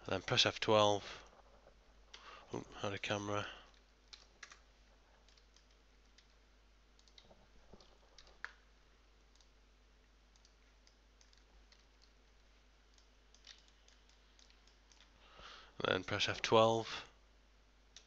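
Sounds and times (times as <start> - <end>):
mouse and keyboard clicks: 3.7 - 4.6, 5.2 - 6.4, 7.0 - 8.6, 10.3 - 12.2, 12.9 - 15.2.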